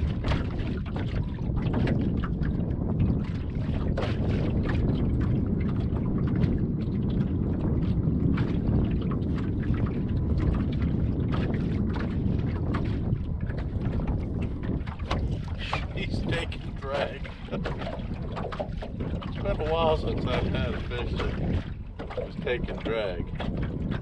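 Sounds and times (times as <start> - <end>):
water lapping against boat hull: 0.0 - 24.0
wind rumble on microphone: 0.0 - 24.0.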